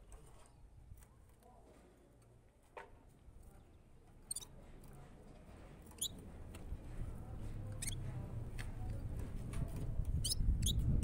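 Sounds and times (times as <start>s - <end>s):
songbird chirping: 7.4s - 9.1s.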